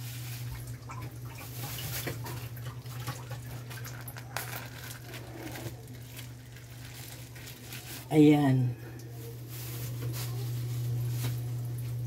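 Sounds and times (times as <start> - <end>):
rustling of cloth bag: 3.8 - 11.7.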